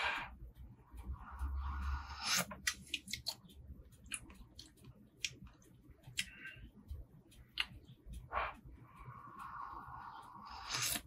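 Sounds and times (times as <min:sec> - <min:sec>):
mouth clicks and lip smacks: 0:02.2 - 0:08.3.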